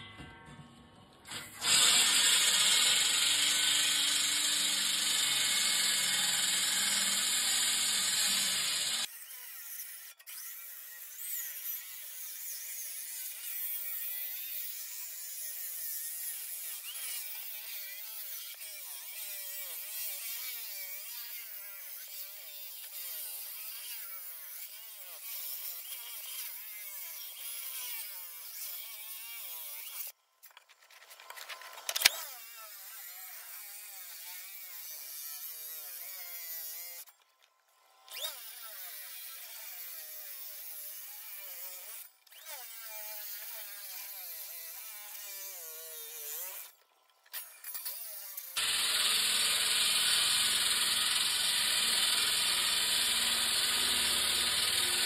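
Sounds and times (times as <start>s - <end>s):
concrete saw whining: 1.3s - 12.9s, 37.9s - 55.0s.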